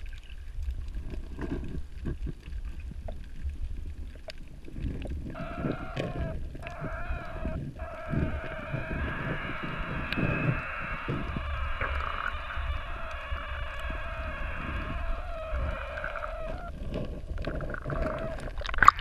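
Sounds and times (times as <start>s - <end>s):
underwater rumbling water movement: 0.0s - 19.0s
droning whine: 5.3s - 18.6s.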